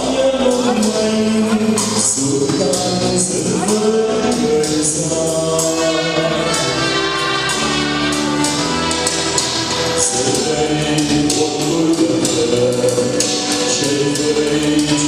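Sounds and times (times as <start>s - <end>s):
instrumental accompaniment: 0.0s - 15.0s
voices singing a hymn: 8.9s - 15.0s.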